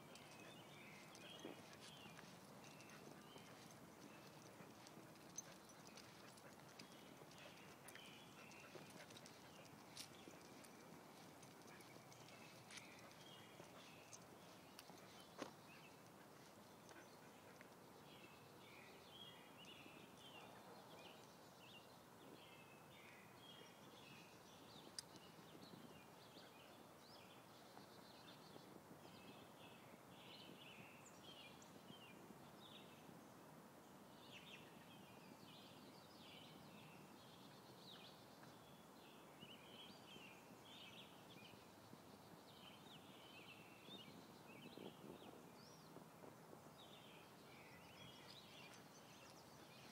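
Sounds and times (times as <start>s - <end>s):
low steady background hiss: 0.0s - 49.9s
songbirds chirping: 0.0s - 49.9s.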